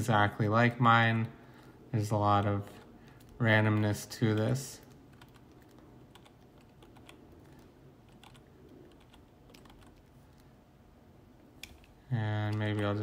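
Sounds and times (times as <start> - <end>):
low steady hum: 0.0 - 13.0
keyboard keys clicking: 3.1 - 10.4.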